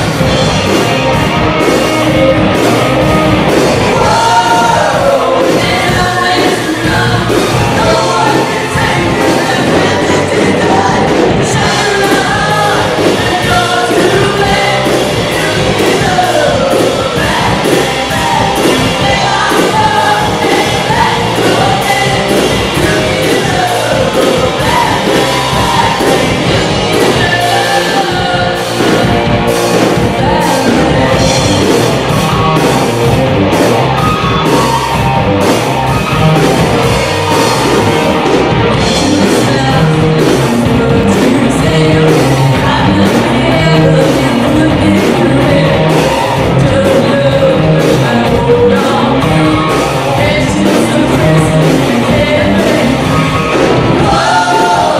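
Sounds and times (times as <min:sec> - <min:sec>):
live rock band playing: 0:00.0 - 0:54.9
woman singing: 0:03.8 - 0:29.2, 0:30.0 - 0:31.4, 0:39.2 - 0:53.4, 0:54.0 - 0:54.9.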